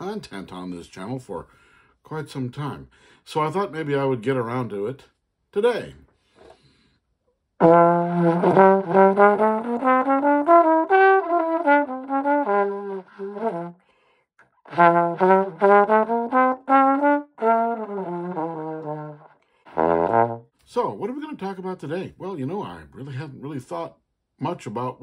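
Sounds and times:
trombone playing melody: 0:07.6 - 0:13.8, 0:14.6 - 0:20.5.

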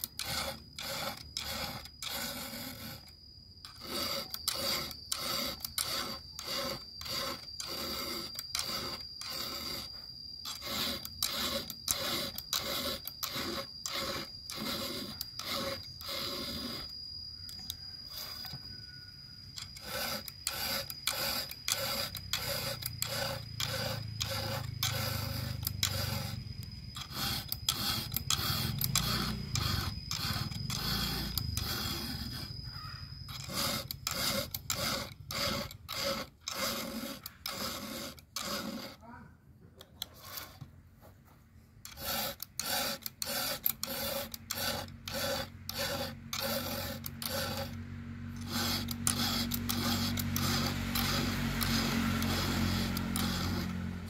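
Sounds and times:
file rasping on saw chain: 0:00.0 - 0:39.2, 0:39.8 - 0:40.7, 0:41.8 - 0:54.0.

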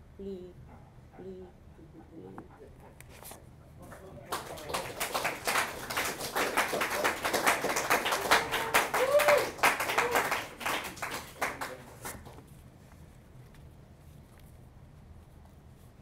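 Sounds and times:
small audience applauding: 0:03.8 - 0:12.4.

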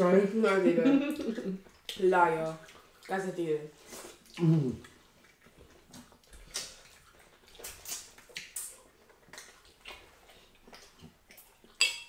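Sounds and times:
wet eating squelches: 0:01.0 - 0:11.9
mouth smacks: 0:03.9 - 0:11.8.

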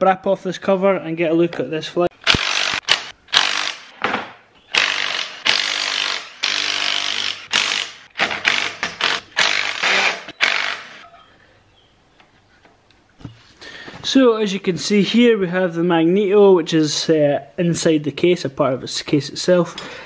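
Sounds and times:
cordless drill spinning out bolts: 0:04.7 - 0:11.0.

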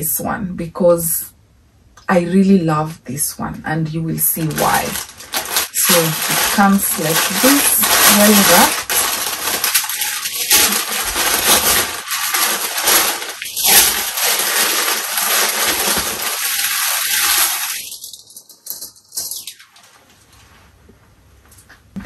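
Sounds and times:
plastic wrapping crinkling: 0:04.1 - 0:20.5.

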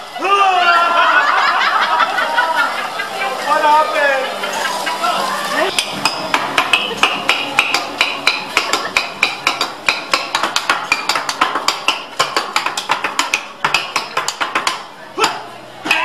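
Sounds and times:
metal spatula clacking on griddle: 0:05.8 - 0:14.8.

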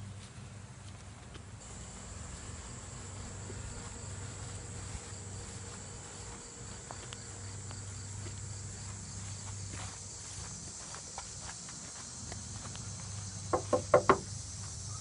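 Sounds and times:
low steady hum: 0:00.0 - 0:10.9
crickets trilling: 0:01.6 - 0:15.0.

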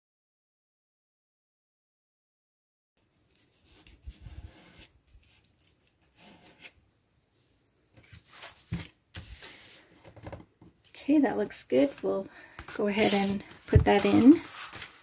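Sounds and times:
paper rustling and rubbing: 0:03.3 - 0:06.8, 0:08.0 - 0:09.9, 0:12.8 - 0:15.0.

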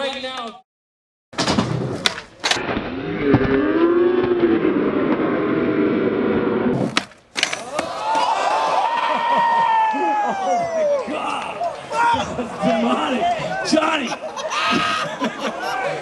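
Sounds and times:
skateboard wheels rolling rumble: 0:01.4 - 0:07.0
crowd yelling and whooping: 0:07.6 - 0:13.7.

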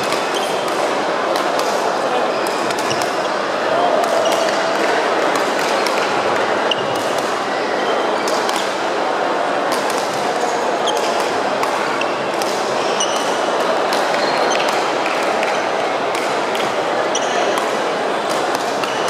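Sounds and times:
racket hitting shuttlecock: 0:00.0 - 0:03.3, 0:03.9 - 0:07.4, 0:08.2 - 0:08.8, 0:09.7 - 0:19.0
din of voices in hall: 0:00.0 - 0:19.0
shoe squeaks on court floor: 0:02.3 - 0:03.4, 0:12.8 - 0:13.3, 0:17.1 - 0:17.6.

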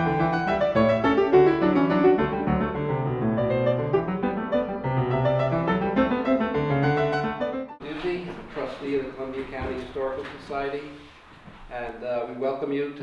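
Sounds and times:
background piano music: 0:00.0 - 0:08.2.

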